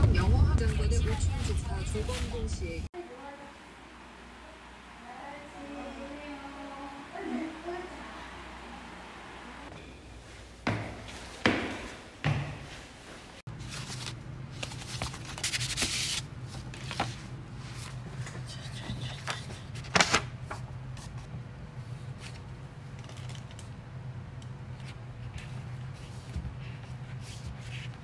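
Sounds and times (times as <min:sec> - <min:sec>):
steady low hum: 0:00.0 - 0:15.5
paper calendar page rustling: 0:13.5 - 0:23.7, 0:24.8 - 0:28.0.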